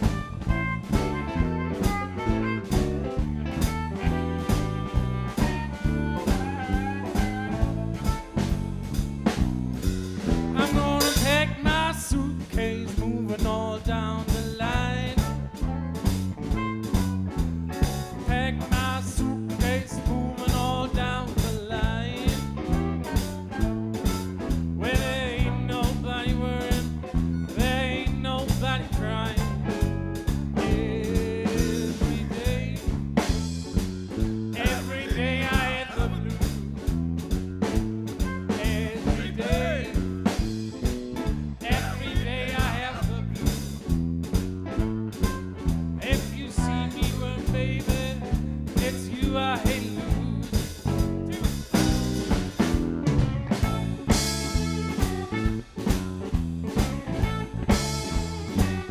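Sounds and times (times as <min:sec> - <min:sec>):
harmonica solo: 0:00.0 - 0:09.0
electric guitar: 0:00.0 - 0:11.7, 0:15.2 - 0:58.9
bass line: 0:00.0 - 0:58.9
drum beat: 0:00.0 - 0:58.9.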